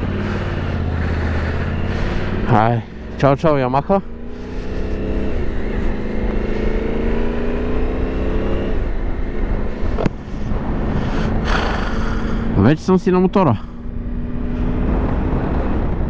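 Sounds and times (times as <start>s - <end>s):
motorcycle engine pulling away: 0.0s - 9.9s.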